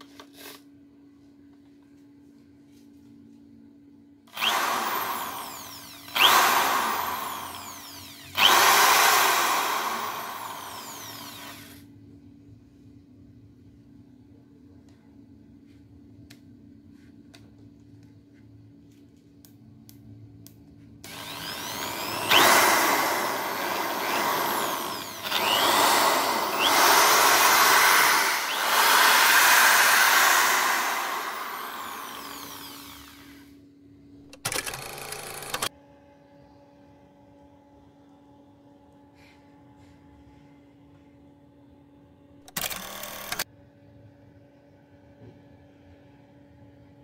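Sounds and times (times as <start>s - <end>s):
impact drill motor running: 4.3s - 11.8s, 21.0s - 33.5s, 34.4s - 35.7s, 42.6s - 43.4s.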